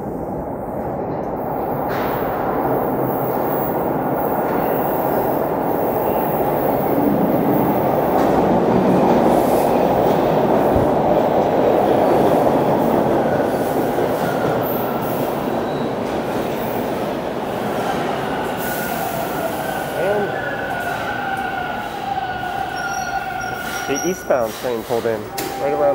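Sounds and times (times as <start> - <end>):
subway train rumbling: 0.0 - 25.9
wheel squeal: 22.7 - 25.8.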